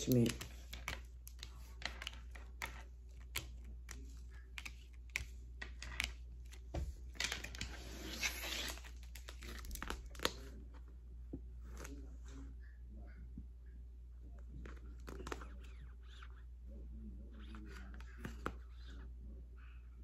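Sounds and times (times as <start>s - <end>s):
cards clicking and tapping: 0.0s - 10.5s
deck of cards shuffling: 0.0s - 10.8s, 14.6s - 16.4s
low steady hum: 0.0s - 20.0s.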